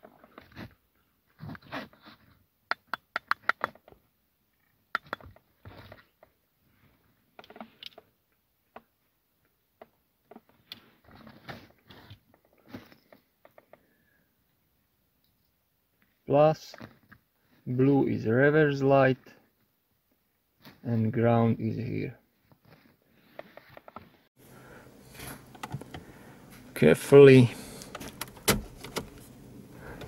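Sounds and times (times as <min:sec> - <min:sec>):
cables rubbing and rustling: 0:00.0 - 0:02.5, 0:03.2 - 0:08.1, 0:09.8 - 0:13.8, 0:22.3 - 0:24.3.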